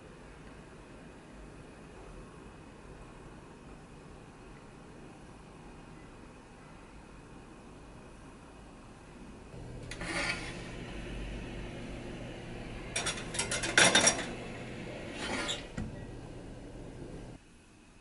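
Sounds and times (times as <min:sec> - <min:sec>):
low steady hum: 0:00.0 - 0:18.0
oven door shutting: 0:09.6 - 0:17.4
metal tin scraping on rack: 0:09.8 - 0:10.7, 0:12.9 - 0:14.4, 0:15.1 - 0:15.8.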